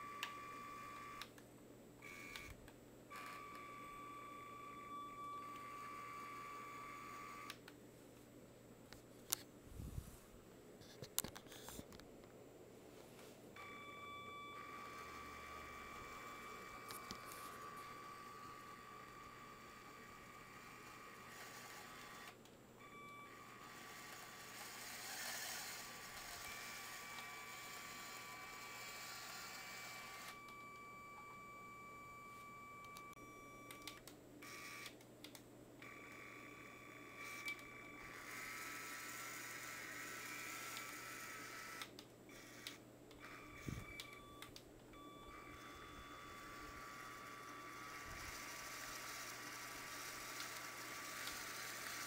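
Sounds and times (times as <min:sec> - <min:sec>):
small electric motor whine: 0:00.0 - 0:01.3, 0:02.0 - 0:07.6, 0:13.6 - 0:35.0, 0:35.8 - 0:44.4, 0:45.0 - 0:52.0.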